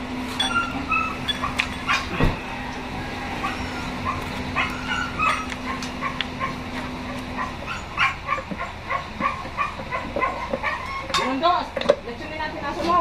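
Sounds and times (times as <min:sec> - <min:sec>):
metal gears clinking: 0:00.3 - 0:02.1
dog yipping and barking: 0:00.4 - 0:02.2, 0:03.3 - 0:11.3.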